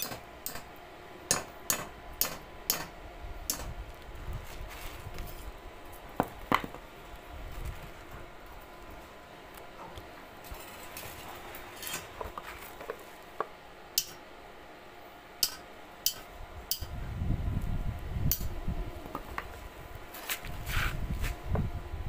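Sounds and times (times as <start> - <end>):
metallic clinks of rebar and hammer: 15.4 - 16.9
low rumbling noise: 16.3 - 22.0.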